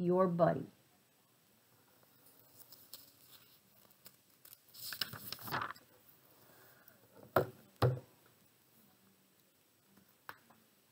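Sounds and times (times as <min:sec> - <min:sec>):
pages turning with paper rustle: 0:02.0 - 0:05.9
book knocking: 0:07.3 - 0:08.1.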